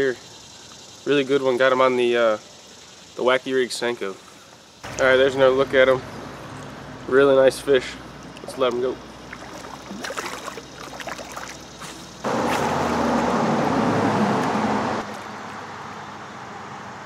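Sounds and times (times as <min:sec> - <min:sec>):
faint clicks and splashes: 0:08.2 - 0:12.6
river water rushing: 0:09.2 - 0:15.4.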